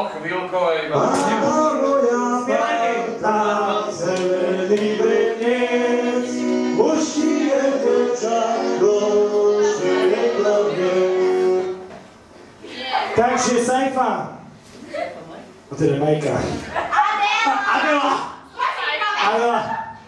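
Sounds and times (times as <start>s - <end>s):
music with singing: 1.0s - 11.9s.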